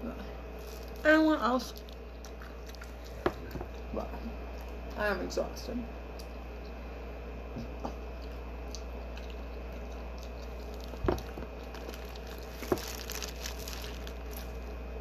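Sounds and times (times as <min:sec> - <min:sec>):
hands rustling plastic bag: 0:00.6 - 0:01.1, 0:10.7 - 0:14.7.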